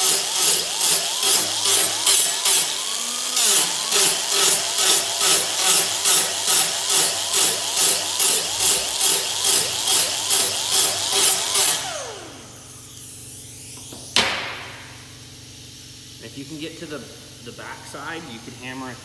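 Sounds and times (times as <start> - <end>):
pneumatic grinder grinding steel: 0.0 - 14.4
grinder spinning down whine: 0.0 - 14.5.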